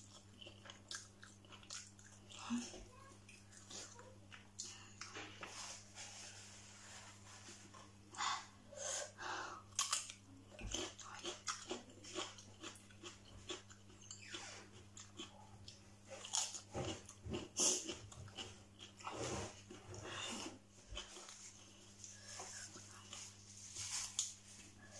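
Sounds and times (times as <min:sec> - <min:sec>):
chewing and crunching lettuce: 0:00.0 - 0:06.5, 0:09.7 - 0:24.9
breathing: 0:08.2 - 0:09.7.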